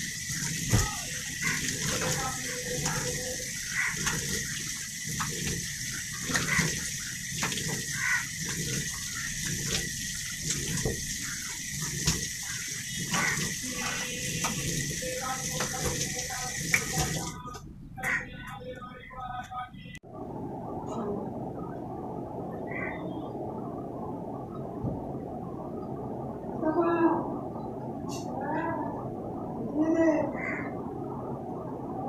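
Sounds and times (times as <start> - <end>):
tap water running into sink: 0.0 - 17.6
water splashing on face: 0.0 - 17.6.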